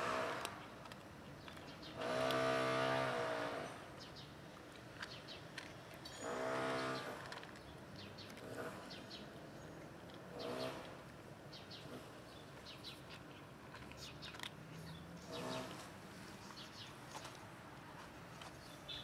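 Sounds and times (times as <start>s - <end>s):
cat eating dry kibble: 0.0s - 18.9s
small birds chirping: 0.6s - 2.0s, 4.0s - 10.8s, 11.5s - 17.4s, 18.4s - 19.0s.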